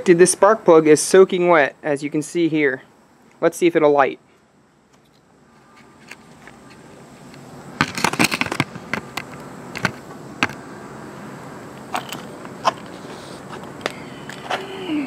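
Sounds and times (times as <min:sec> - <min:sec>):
camera handling rattling knocks: 0:07.8 - 0:10.6.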